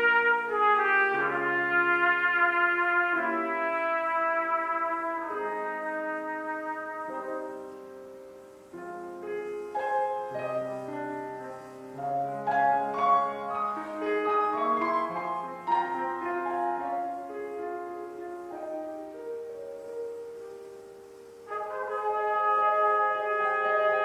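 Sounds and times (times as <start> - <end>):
grand piano solo: 0.0 - 24.0.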